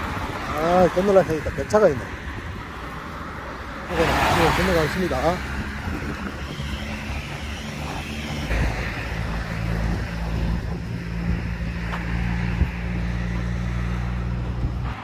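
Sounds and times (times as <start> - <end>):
road traffic noise: 0.0 - 15.0
vehicle engine running close by: 3.3 - 15.0.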